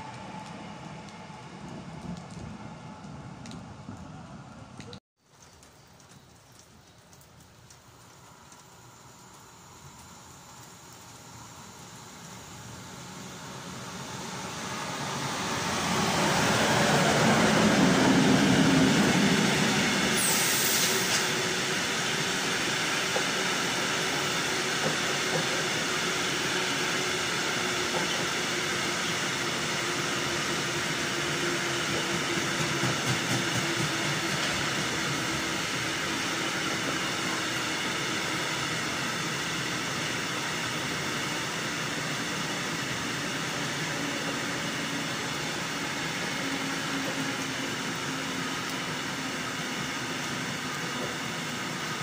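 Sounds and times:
electric locomotive passing: 0.0 - 5.0, 6.0 - 52.0
brief hiss: 20.1 - 21.4.

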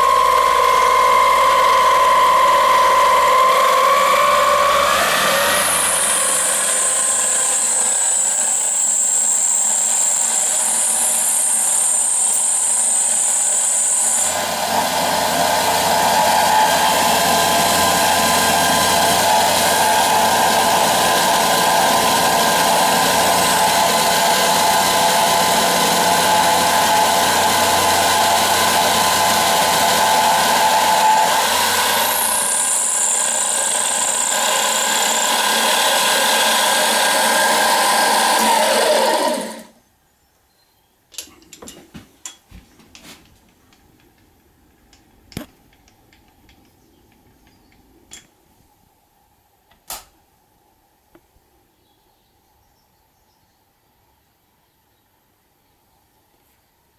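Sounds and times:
milling machine cutting brass: 0.0 - 39.7.

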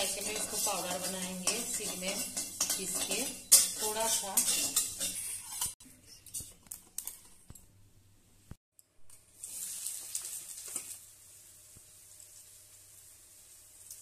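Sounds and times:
onions sizzling in hot oil: 0.0 - 5.8, 9.1 - 14.0.

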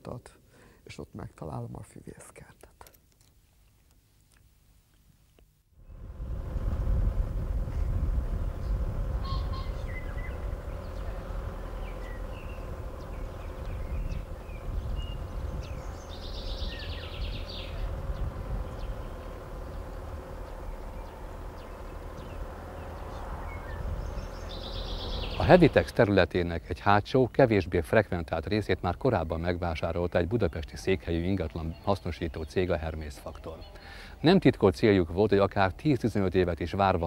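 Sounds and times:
faint hum: 5.8 - 34.6
birds chirping: 5.8 - 36.4
low outdoor rumble: 5.8 - 37.0.

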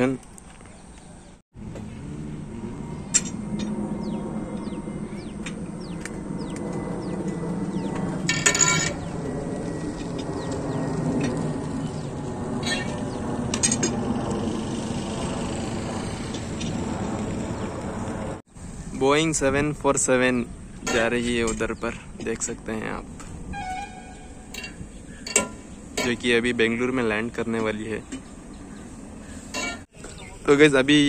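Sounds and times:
birds chirping: 0.0 - 2.0, 2.7 - 8.3, 8.9 - 13.5, 20.0 - 30.8
distant jet airliner rumble: 0.0 - 30.4.

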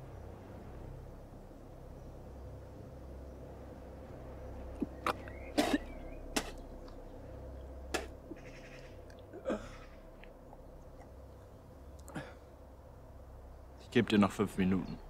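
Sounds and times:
man coughing: 5.6 - 6.5, 9.3 - 9.9, 12.1 - 12.4.

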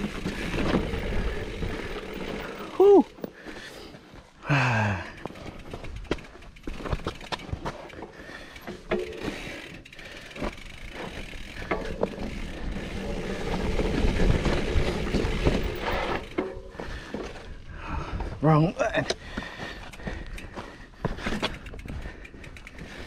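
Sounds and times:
tyre and wind rumble: 0.0 - 3.2, 10.5 - 18.7
bike rattling over rocks: 0.0 - 3.6, 5.1 - 18.6, 19.2 - 23.0.

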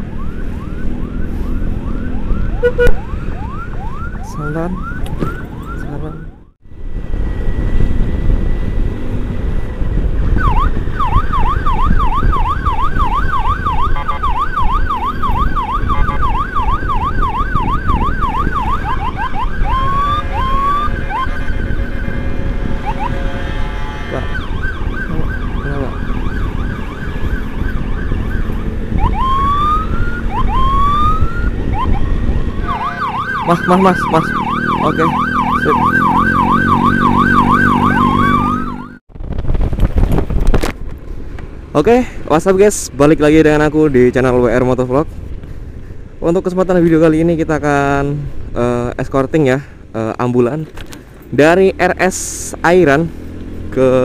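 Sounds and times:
electronic siren yelping: 0.0 - 8.4, 10.2 - 39.0
motorcycle engine rumble: 0.0 - 46.3
wind: 0.0 - 54.0.

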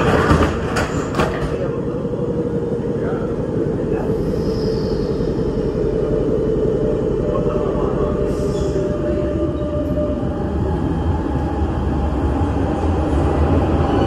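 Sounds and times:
train rumble: 0.0 - 14.0
train motor tone: 1.7 - 12.0.

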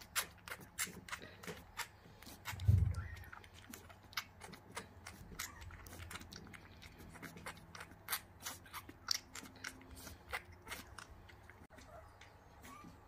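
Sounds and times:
puppy suckling at a bottle: 0.0 - 13.0.

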